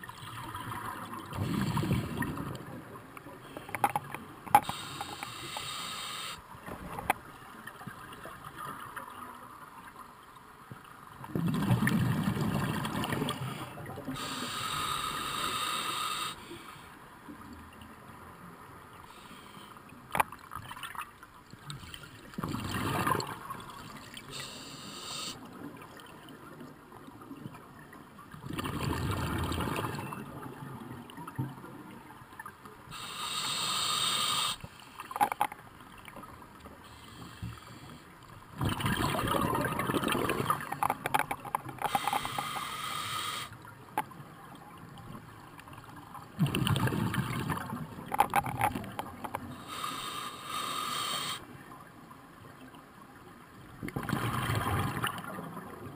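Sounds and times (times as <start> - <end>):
regulator hissing inhale: 4.6 - 6.4, 14.2 - 17.0, 19.0 - 19.8, 24.3 - 25.4, 32.9 - 35.0, 36.8 - 38.1, 41.9 - 43.6, 49.5 - 51.5
exhaled air bubbling: 38.5 - 43.0, 46.3 - 49.9, 53.8 - 55.9.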